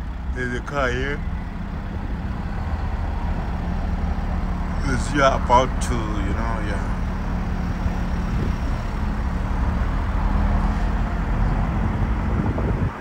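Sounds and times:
road noise: 0.0s - 13.0s
truck engine running: 0.0s - 13.0s.

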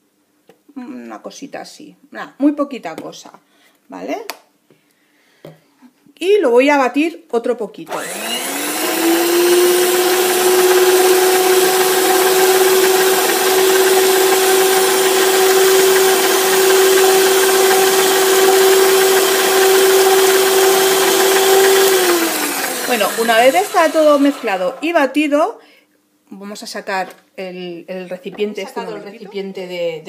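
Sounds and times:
stand mixer whisking batter: 8.0s - 25.0s.

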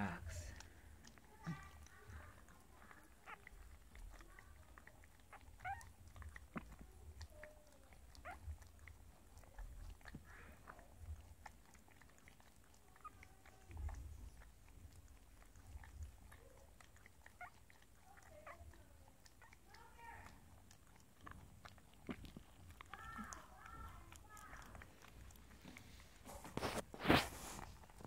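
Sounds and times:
dog licking puppy: 0.0s - 28.0s
puppy squeaks: 5.3s - 5.9s.

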